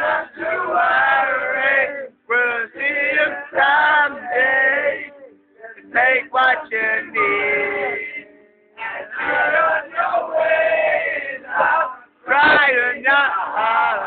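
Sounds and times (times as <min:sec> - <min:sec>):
young men chanting together: 0:08.8 - 0:14.0.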